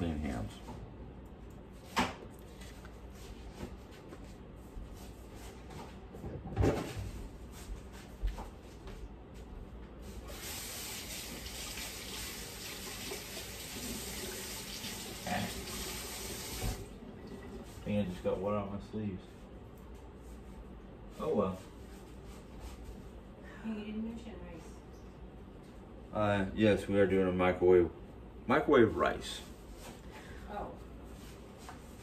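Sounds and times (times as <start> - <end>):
tap water running: 10.2 - 17.6.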